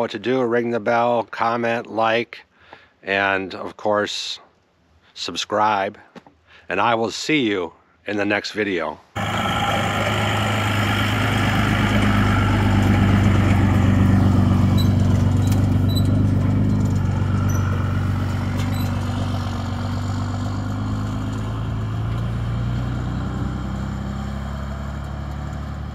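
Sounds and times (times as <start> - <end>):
pickup truck engine running: 9.2 - 25.9.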